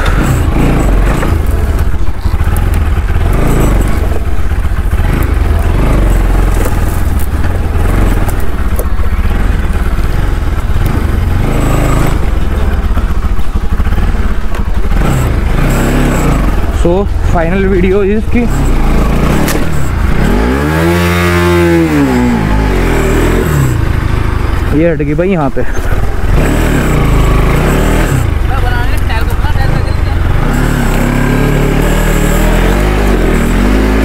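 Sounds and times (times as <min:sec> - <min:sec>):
motorcycle knocking over bumps: 0:00.0 - 0:16.8
motorcycle engine running: 0:00.0 - 0:34.0.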